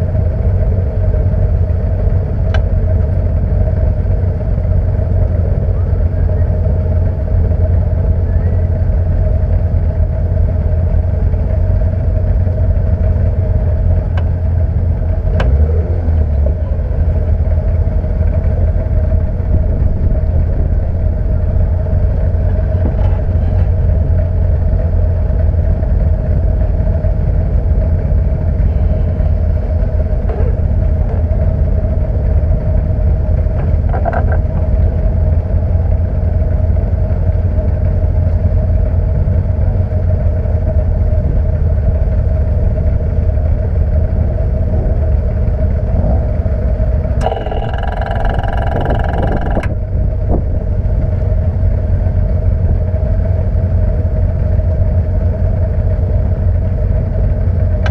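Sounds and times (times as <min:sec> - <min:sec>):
race car engine idling: 0:00.0 - 0:57.9
higher-pitched tone: 0:47.2 - 0:49.8.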